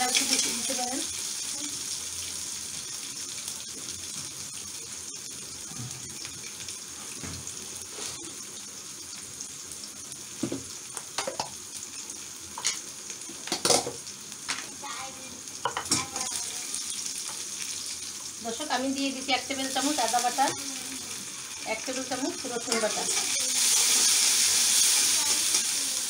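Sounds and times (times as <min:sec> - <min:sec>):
vegetables sizzling in hot oil: 0:00.0 - 0:26.0
kitchenware knocking and clattering: 0:13.5 - 0:14.0, 0:15.6 - 0:16.1.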